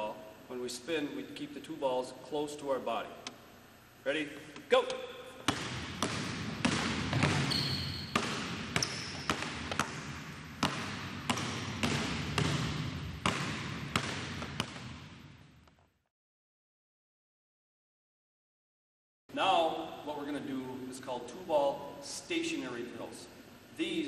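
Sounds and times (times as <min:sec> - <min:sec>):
basketballs dribbled on hardwood floor: 0:05.4 - 0:15.2
shoe squeaks: 0:07.1 - 0:08.2, 0:08.8 - 0:09.6.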